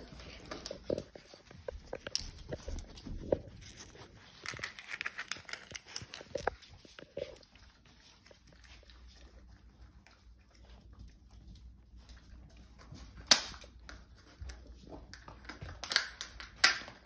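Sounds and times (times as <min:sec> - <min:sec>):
crackle: 0:00.0 - 0:17.0
puppies licking: 0:00.0 - 0:17.0
puppy paws clicking on floor: 0:00.0 - 0:17.0
cup crinkling under scissors: 0:00.6 - 0:07.5.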